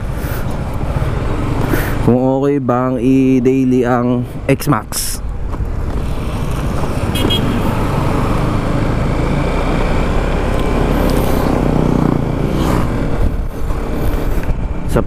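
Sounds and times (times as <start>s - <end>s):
wind and road noise: 0.0s - 15.0s
scooter engine running: 5.4s - 14.6s.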